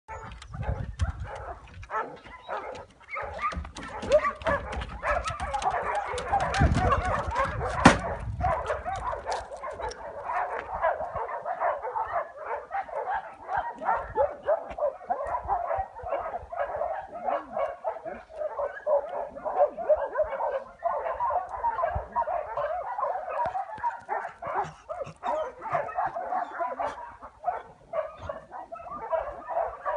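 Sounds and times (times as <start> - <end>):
many dogs barking and yelping: 0.1 - 29.9.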